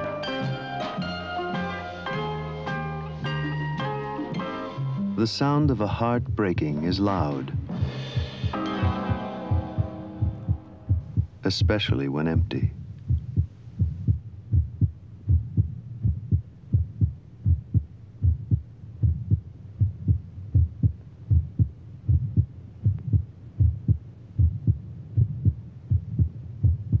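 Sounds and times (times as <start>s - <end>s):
heartbeat thumps: 5.5s - 27.0s.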